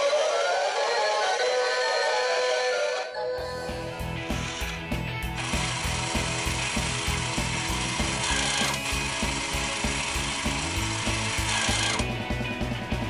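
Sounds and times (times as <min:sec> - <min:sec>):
claw machine motor whirring: 0:04.2 - 0:04.8, 0:05.4 - 0:12.1.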